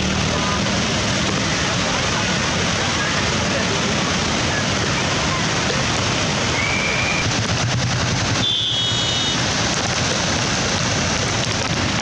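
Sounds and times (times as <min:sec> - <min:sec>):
turbulent river water rushing: 0:00.0 - 0:12.0
rapid crackling: 0:07.2 - 0:12.0.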